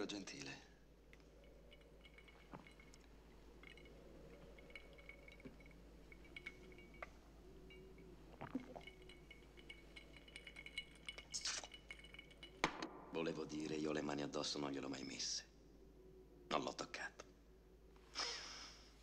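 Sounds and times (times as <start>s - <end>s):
drinking glass clinking: 1.1s - 14.6s.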